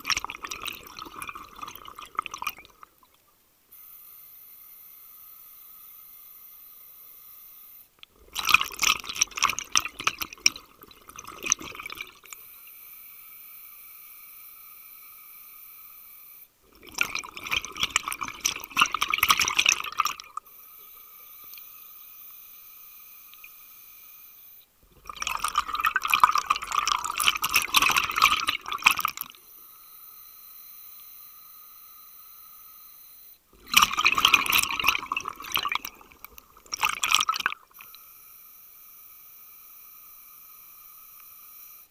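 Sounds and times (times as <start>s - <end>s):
exhaled bubbles gurgling: 0.0s - 3.1s, 8.2s - 12.3s, 16.7s - 20.4s, 24.9s - 29.4s, 33.6s - 37.9s
faint steady whine: 0.0s - 41.9s.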